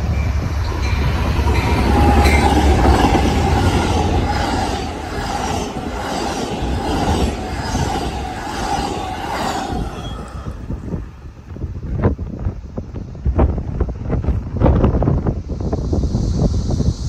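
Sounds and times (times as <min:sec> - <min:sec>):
high ringing from rails: 0:00.0 - 0:11.4
locomotive engine drone: 0:00.0 - 0:12.0
wheel-on-rail noise: 0:00.0 - 0:12.1.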